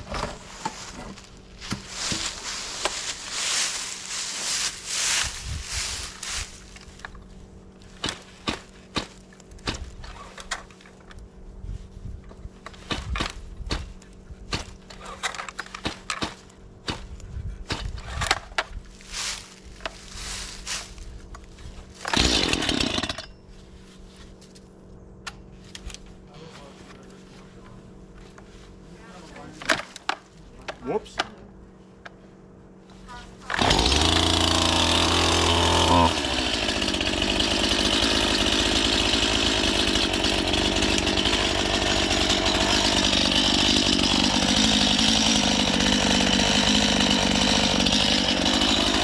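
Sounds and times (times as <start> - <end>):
chainsaw engine sputter: 22.0 - 23.3, 33.4 - 49.0
chainsaw starter cord yanks: 33.4 - 49.0.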